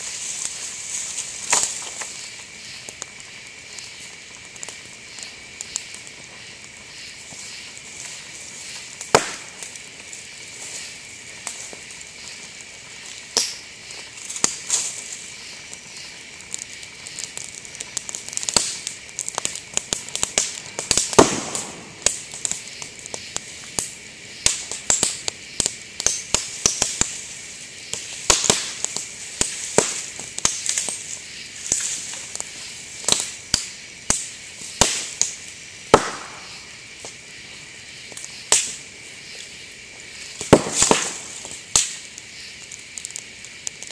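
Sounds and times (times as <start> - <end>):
campfire crackling: 0.0 - 43.9
bamboo popping and banging: 9.0 - 9.6, 18.2 - 22.3, 35.9 - 36.5, 40.4 - 42.0.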